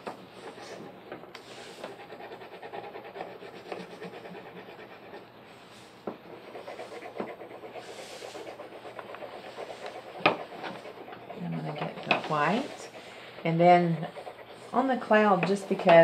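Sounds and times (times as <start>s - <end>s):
crayon rasping on paper: 6.3s - 16.0s.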